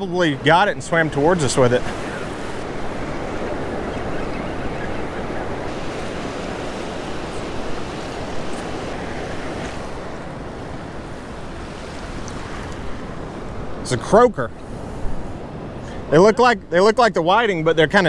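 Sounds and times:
wind on microphone: 0.0 - 13.8
ocean surf washing onto beach: 0.0 - 18.0.

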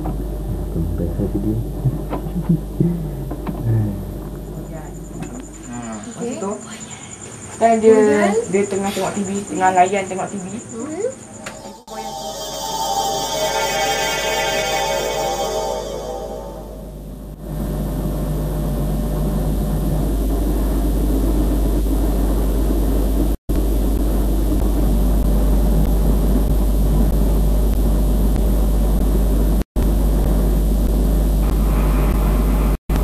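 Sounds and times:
deep hum: 0.4 - 4.5, 11.2 - 17.4.

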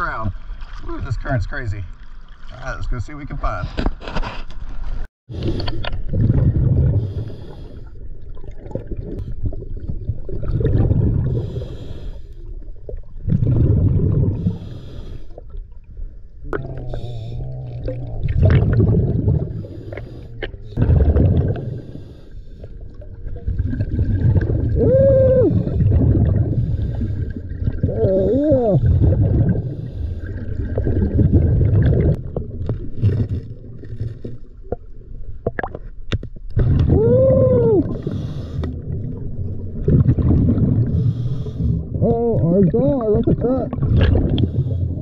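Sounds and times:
diver breathing through regulator: 6.9 - 8.0, 11.2 - 12.4, 14.3 - 15.5, 19.4 - 20.8, 21.5 - 22.9, 25.5 - 27.5, 37.9 - 38.8, 40.8 - 42.0.

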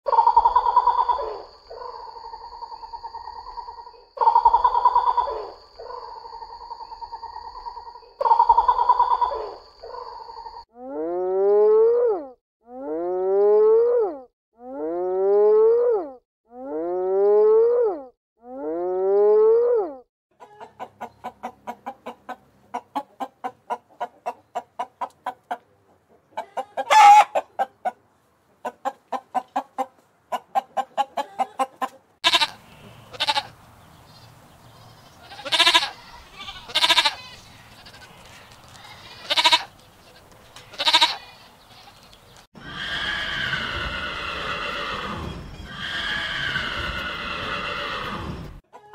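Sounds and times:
pheasant call: 0.1 - 10.6.

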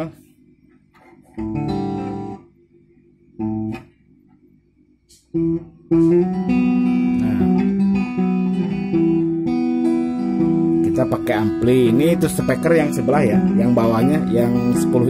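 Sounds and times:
acoustic guitar strumming: 1.3 - 2.4, 3.4 - 3.9, 5.3 - 15.0.

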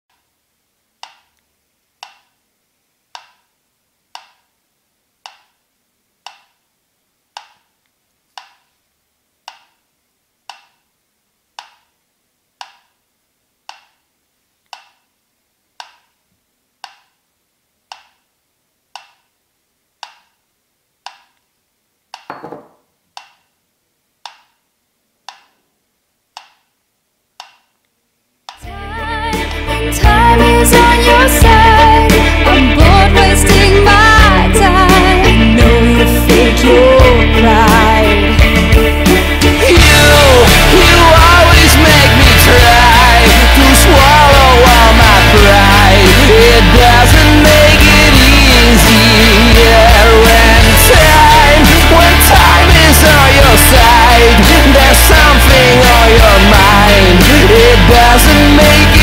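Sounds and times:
ceramic mug tipping over: 22.3 - 22.9.

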